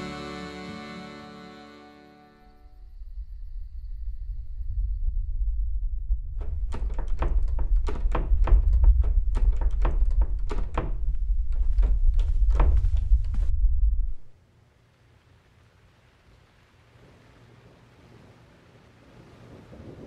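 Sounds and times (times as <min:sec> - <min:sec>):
deep steady rumble: 0:02.6 - 0:14.4
wooden door knocking and rattling: 0:06.4 - 0:13.4.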